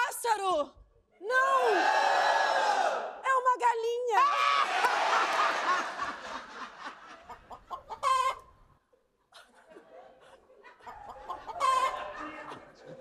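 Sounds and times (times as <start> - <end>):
studio audience laughter: 4.8 - 7.6
chicken squawks: 7.9 - 8.4.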